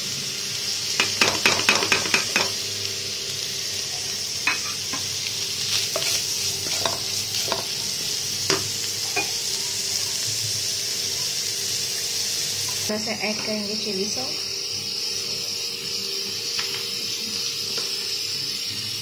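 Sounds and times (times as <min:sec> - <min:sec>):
food sizzling in frying pan: 0:00.0 - 0:19.0
spatula knocking on pan: 0:01.0 - 0:02.6.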